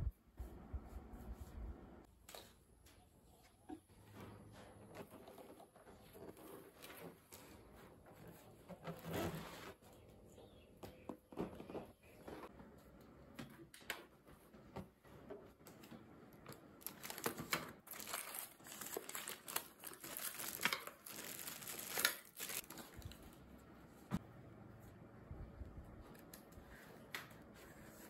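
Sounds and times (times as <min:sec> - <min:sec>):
plastic packaging crinkling and tearing: 0:16.8 - 0:23.4.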